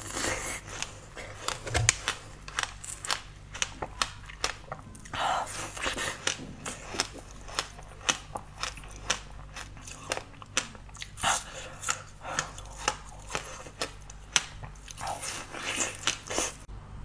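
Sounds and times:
chewing with crackly clicks: 0:00.0 - 0:16.7.

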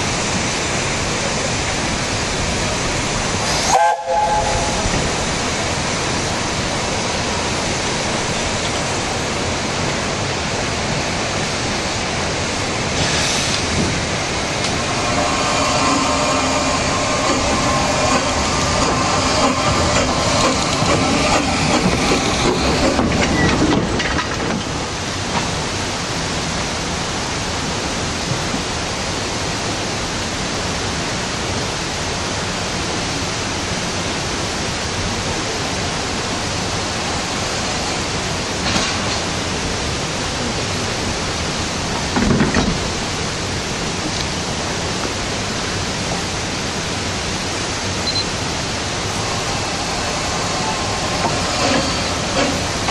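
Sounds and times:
steady steam hiss: 0:00.0 - 0:52.9
steam locomotive moving off: 0:00.3 - 0:09.5, 0:12.7 - 0:25.8, 0:47.9 - 0:52.9.

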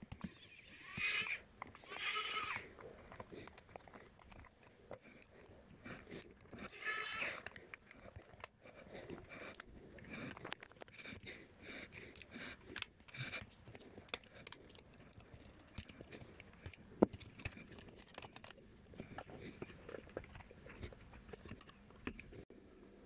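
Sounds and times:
plastic and metal parts handled: 0:06.2 - 0:22.4.

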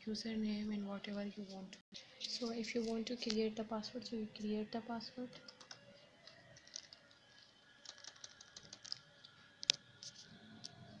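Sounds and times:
laptop keyboard clicks: 0:07.8 - 0:09.8.

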